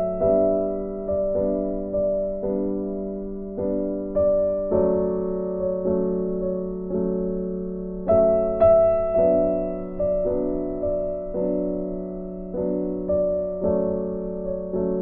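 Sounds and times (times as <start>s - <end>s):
soft piano music: 0.0s - 15.0s.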